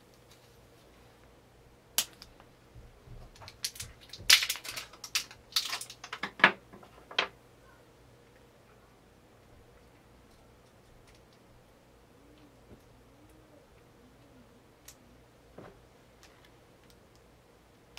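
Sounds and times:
clicks and rattles of batteries: 3.3 - 7.3.

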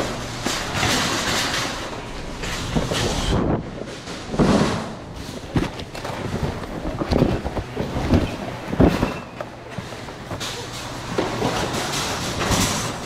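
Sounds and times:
boxes and packages knocked about: 0.0 - 13.0
shopping cart rolling on concrete: 0.0 - 13.0.

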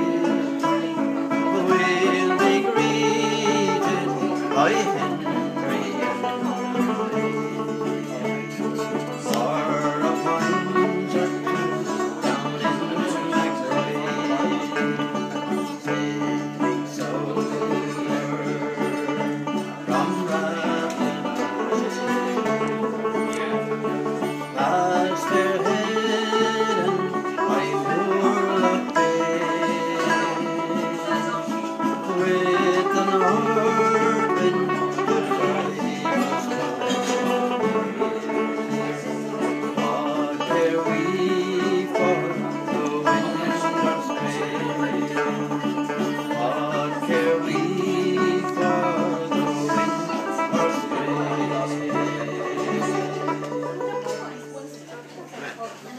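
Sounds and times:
acoustic guitar: 0.0 - 55.9.

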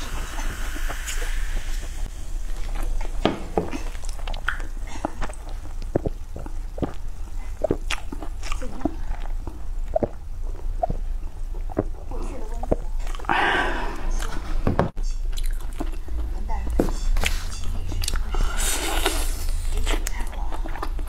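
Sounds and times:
person gulping a drink: 0.0 - 14.5
mouth clicks: 2.7 - 13.4.

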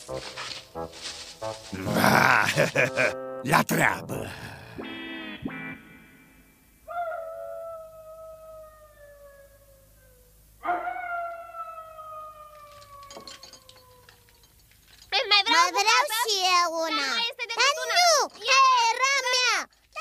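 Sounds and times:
wolf howling: 6.9 - 14.5.

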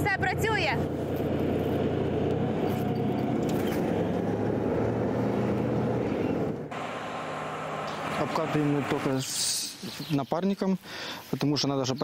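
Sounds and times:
tank diesel engine running: 0.0 - 9.3.

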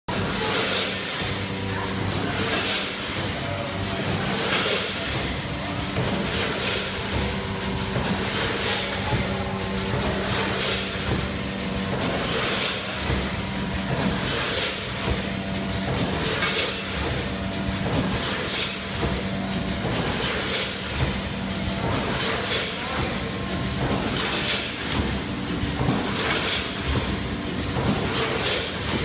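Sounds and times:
air hiss bursts: 10.2 - 11.1.

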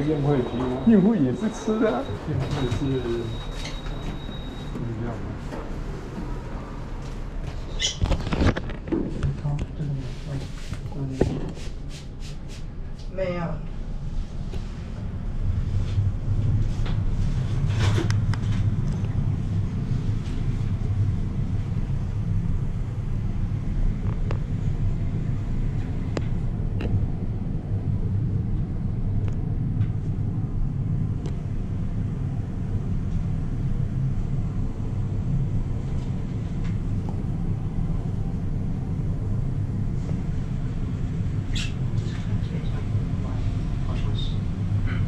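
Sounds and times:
elevator low rumble: 0.0 - 11.9, 12.6 - 45.0.

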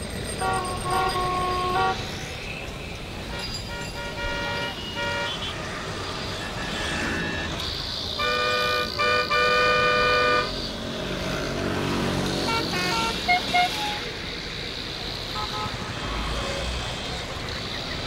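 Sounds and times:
street traffic: 0.0 - 18.0
vehicle horn honking: 0.4 - 2.0, 3.3 - 5.6, 8.2 - 10.5, 12.4 - 14.0.

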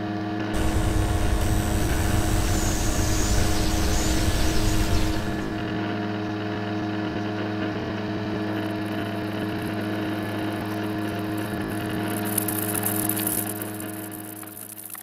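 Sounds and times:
high hiss: 0.6 - 5.8.

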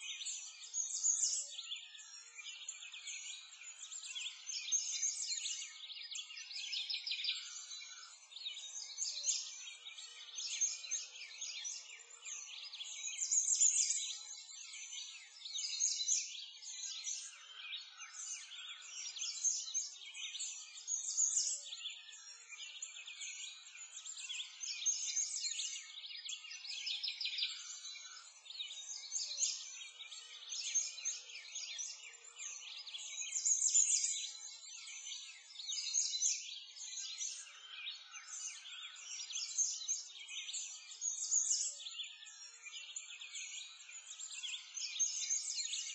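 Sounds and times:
songbirds chirping: 0.0 - 45.9.

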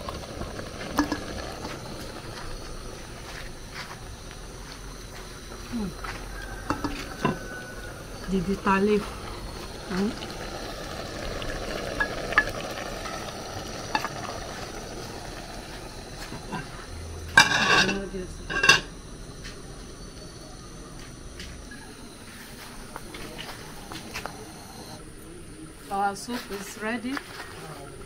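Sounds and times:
soup simmering: 0.0 - 17.8.

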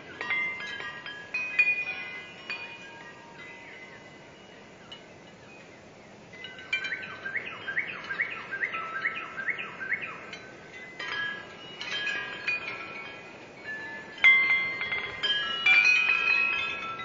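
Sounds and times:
wind chimes ringing: 0.0 - 17.0
finch singing: 6.4 - 10.6.

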